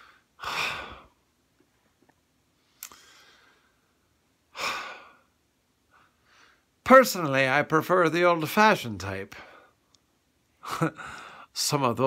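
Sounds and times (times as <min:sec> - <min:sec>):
man breathing: 0:00.0 - 0:01.2, 0:02.6 - 0:06.8, 0:09.4 - 0:09.9, 0:10.9 - 0:11.6.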